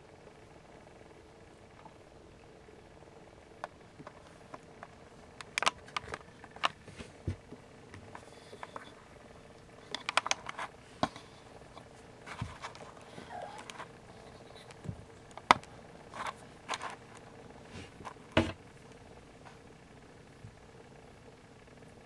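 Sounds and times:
small clicks: 3.6 - 6.8, 7.9 - 11.9.

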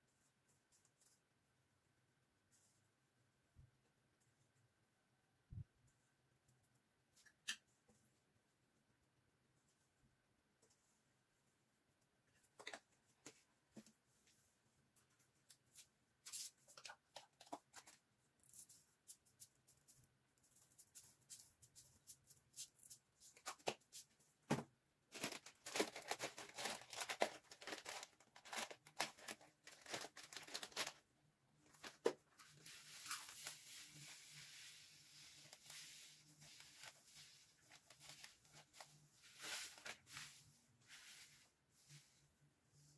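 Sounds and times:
plastic packaging crinkling: 25.1 - 31.0.

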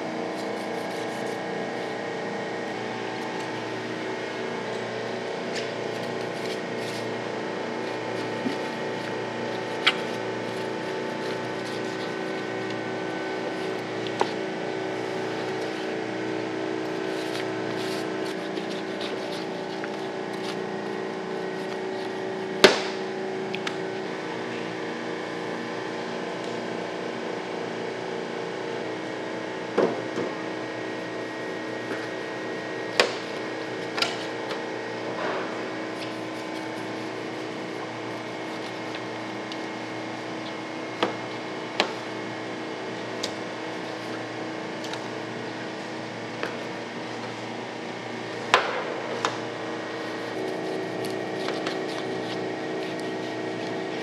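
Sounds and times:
mechanical hum: 0.0 - 54.0
knife chopping: 32.9 - 33.3.

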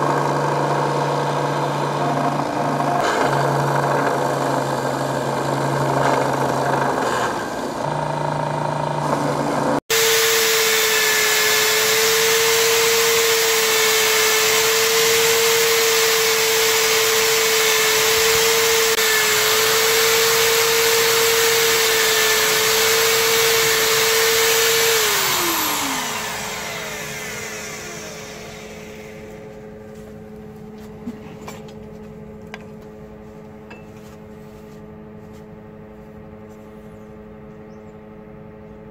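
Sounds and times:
electric drill spinning buffing wheel: 0.0 - 29.8
belt grinder sanding wood: 0.0 - 30.1
low hum: 25.2 - 38.9.

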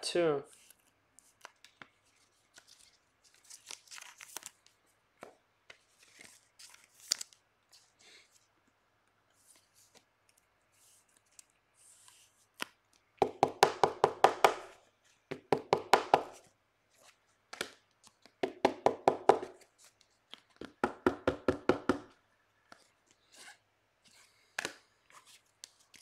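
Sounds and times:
cards tapped on tabletop: 13.2 - 16.4, 18.4 - 19.6, 20.3 - 22.1.

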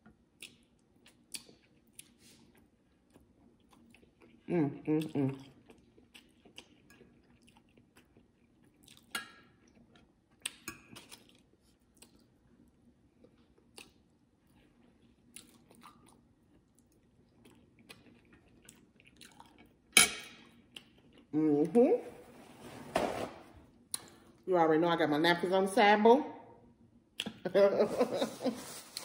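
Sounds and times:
person chewing: 0.3 - 21.3.

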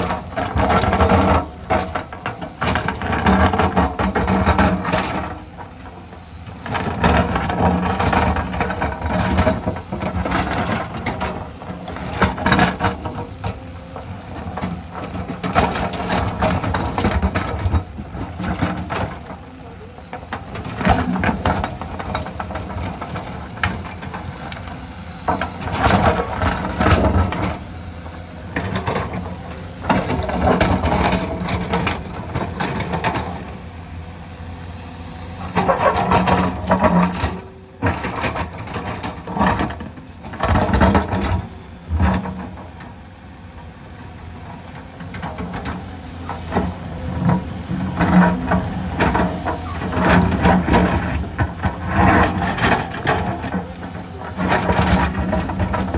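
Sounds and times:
excavator diesel engine: 0.0 - 55.9
rocks clattering and scraping: 20.0 - 33.5, 45.0 - 55.9.

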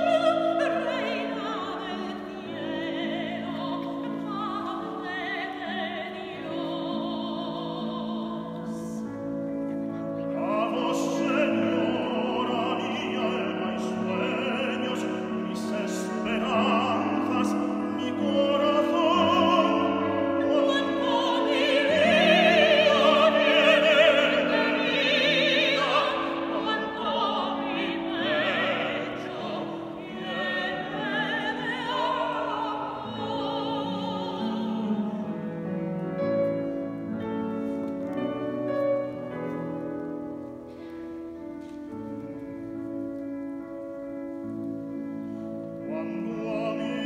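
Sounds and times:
grand piano: 0.0 - 47.0
soprano singing: 0.0 - 47.0
baritone singing: 10.0 - 37.0, 44.7 - 47.0.

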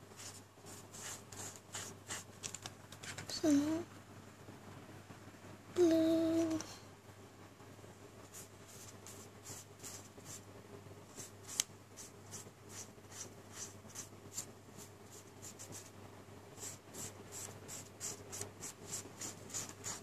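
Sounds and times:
paintbrush stroking paper: 0.1 - 3.3, 8.2 - 10.4, 11.1 - 15.9, 16.6 - 20.0.

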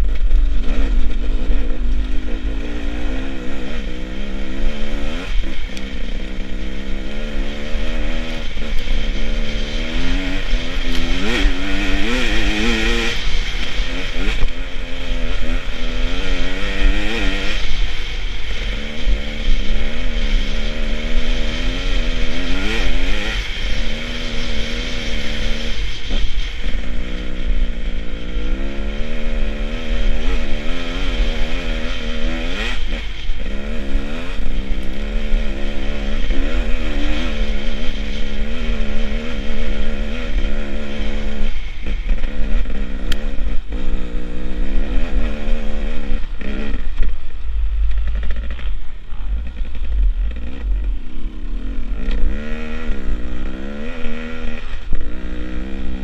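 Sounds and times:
motorcycle engine revving: 0.0 - 56.0
wind rumble on microphone: 0.0 - 56.0.

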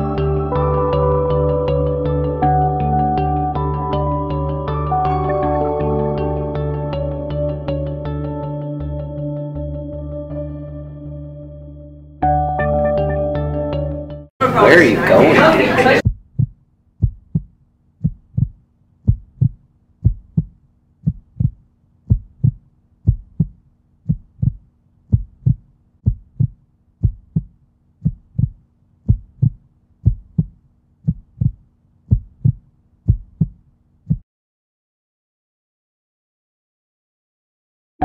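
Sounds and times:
heartbeat thumps: 16.0 - 34.2.

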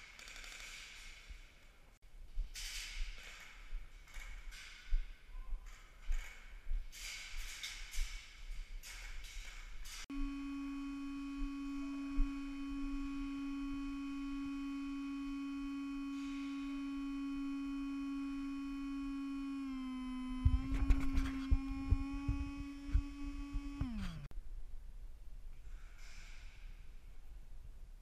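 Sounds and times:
buzzy siren tone: 10.1 - 24.3.

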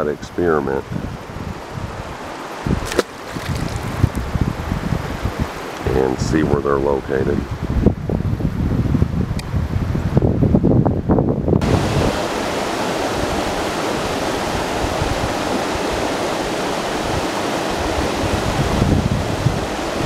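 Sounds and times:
wind buffeting microphone: 0.0 - 20.0
water rushing over waterfall: 11.6 - 20.0.

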